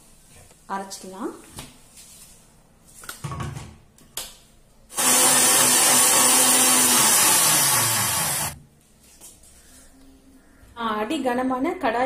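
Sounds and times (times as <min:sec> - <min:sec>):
mixer grinder motor running: 0:04.9 - 0:08.6.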